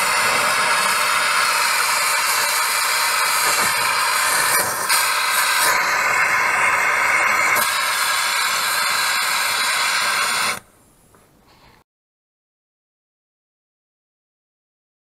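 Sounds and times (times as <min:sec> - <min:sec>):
torch flame hissing: 0:00.0 - 0:10.6.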